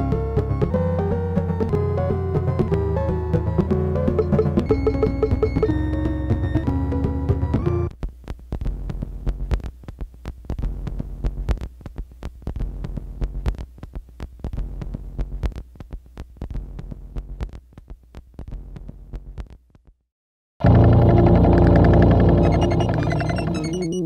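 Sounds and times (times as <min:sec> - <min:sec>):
clicks and crackles: 0:08.0 - 0:19.6
pitched musical phrase: 0:20.6 - 0:24.0.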